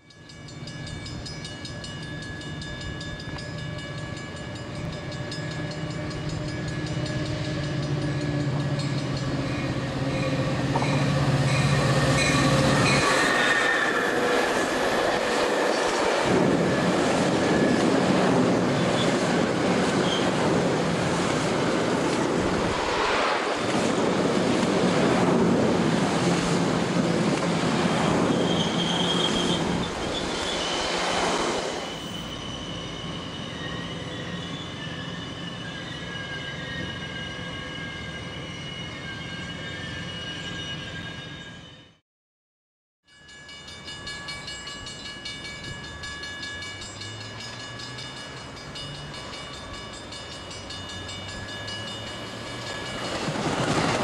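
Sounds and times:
train rumbling past: 0:00.4 - 0:41.8, 0:43.3 - 0:54.0
wheel squeal: 0:12.2 - 0:14.7, 0:28.1 - 0:41.8.

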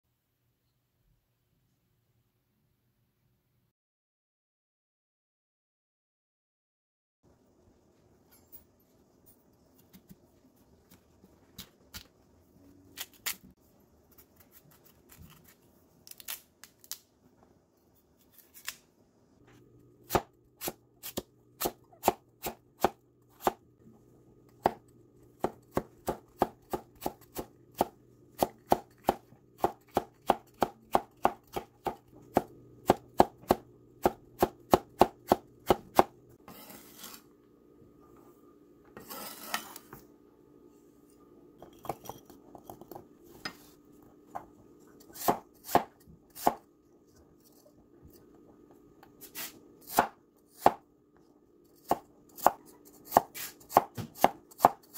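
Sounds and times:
cleaver scraping across board: 0:36.4 - 0:37.3, 0:39.0 - 0:40.0.

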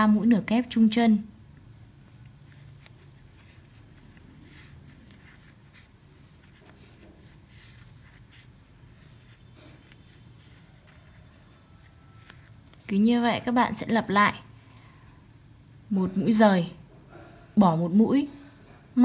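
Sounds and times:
low room hum: 0:00.0 - 0:19.0
crochet hook rustling and ticking: 0:01.5 - 0:13.8.

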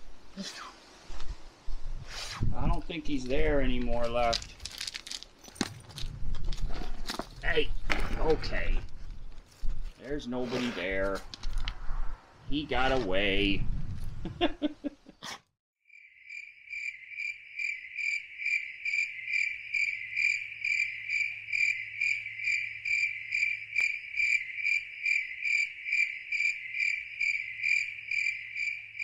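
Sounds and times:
cricket chirping: 0:15.9 - 0:29.0.

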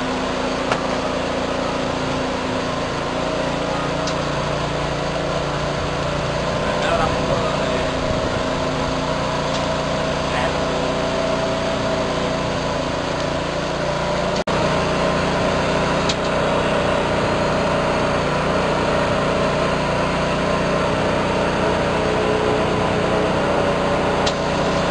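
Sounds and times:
filling machine humming: 0:00.0 - 0:24.9.

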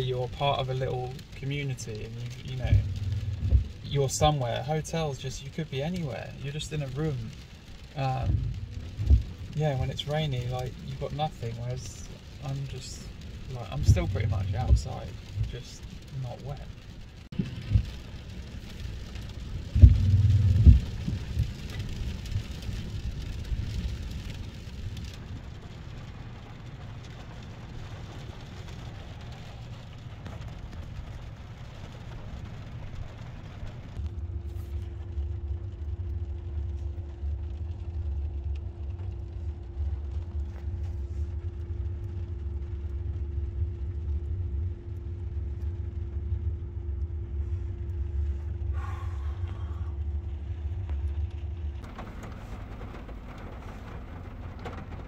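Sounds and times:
car interior rumble: 0:00.0 - 0:55.0
constant hum: 0:00.0 - 0:55.0
heavy low thumps: 0:02.1 - 0:04.6, 0:08.0 - 0:10.0, 0:13.5 - 0:15.6, 0:19.7 - 0:21.6.

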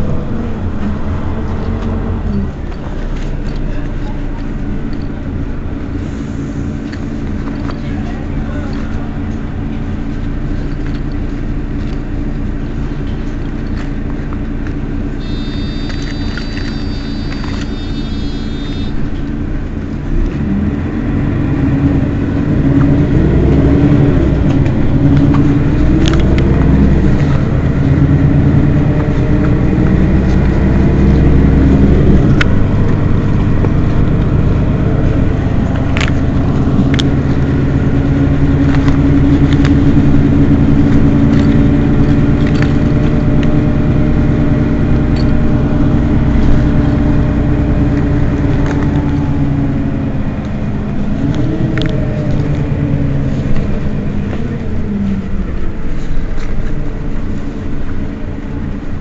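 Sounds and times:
bus diesel engine idling: 0:00.0 - 0:59.0
high electronic tone: 0:15.2 - 0:19.2.

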